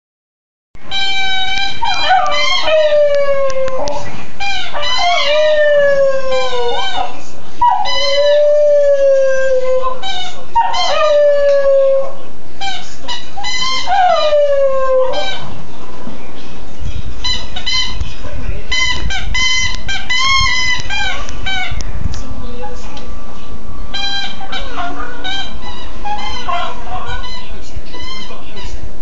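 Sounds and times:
dog howling: 0:01.1 - 0:12.4, 0:13.4 - 0:15.6, 0:23.9 - 0:27.3.

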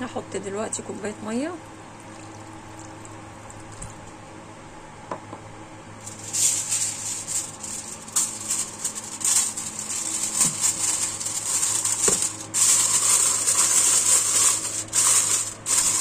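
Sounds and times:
aluminium foil crinkling: 0:06.0 - 0:16.0.

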